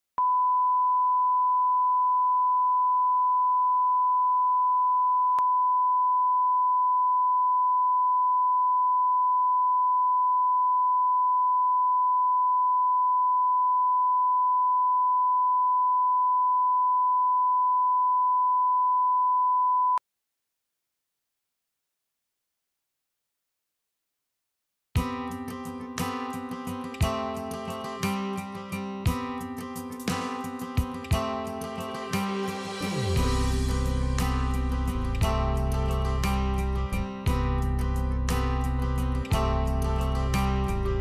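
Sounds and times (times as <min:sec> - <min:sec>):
steady pure tone beep: 0:00.2 - 0:20.0.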